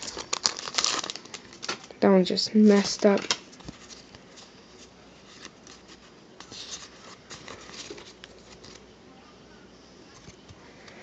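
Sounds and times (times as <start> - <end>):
cards sliding and rubbing: 3.5 - 8.8.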